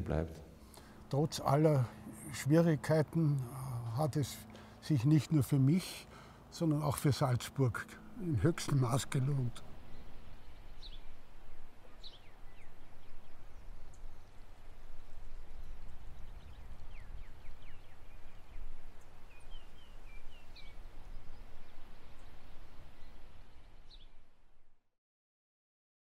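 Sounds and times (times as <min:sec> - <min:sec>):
steady low rumble: 0:00.2 - 0:23.9
bird chirps: 0:08.0 - 0:24.2.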